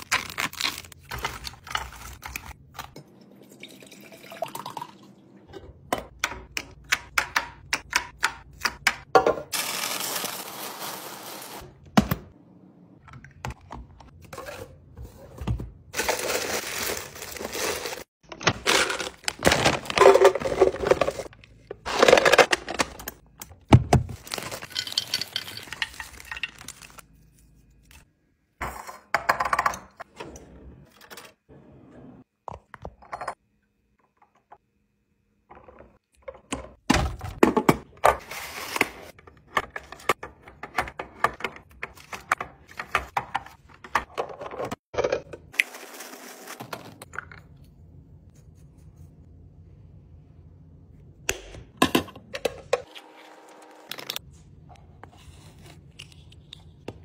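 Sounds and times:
plastic wrappers crinkling: 16.0 - 23.0.

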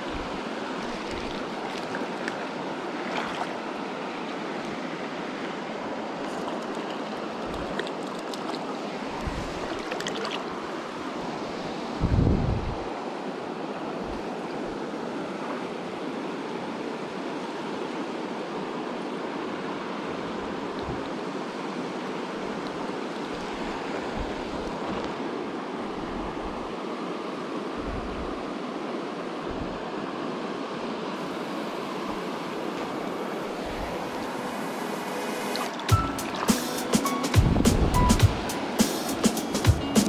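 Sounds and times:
stream flowing over rocks: 0.0 - 12.0, 28.4 - 38.8.

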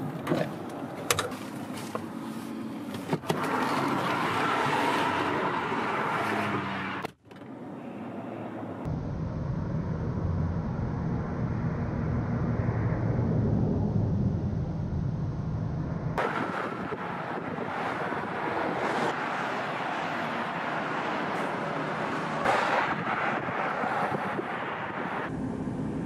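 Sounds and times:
highway traffic rushing: 0.0 - 9.0, 15.8 - 26.0.

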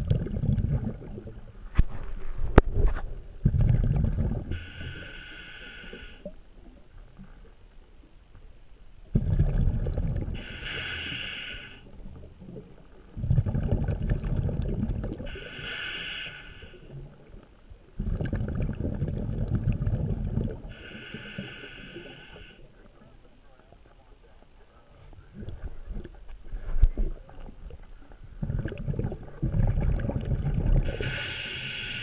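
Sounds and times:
diver breathing through regulator: 4.5 - 6.3, 10.4 - 11.9, 15.3 - 16.9, 20.7 - 22.7, 30.8 - 32.0.

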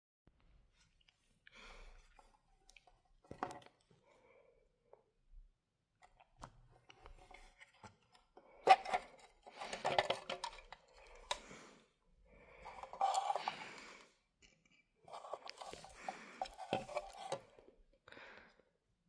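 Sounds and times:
plastic parts clicking and knocking: 3.2 - 3.8, 6.0 - 11.5, 14.4 - 17.6
scraping and rustling: 12.6 - 13.8, 15.0 - 17.6.

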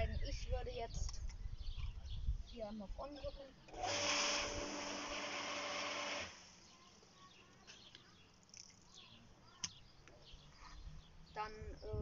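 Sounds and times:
steady pump hum: 3.7 - 6.5
hose nozzle spraying water: 3.7 - 6.6.

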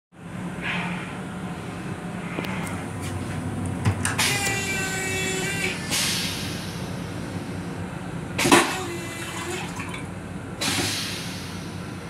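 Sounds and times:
toilet flushing: 8.4 - 11.4.

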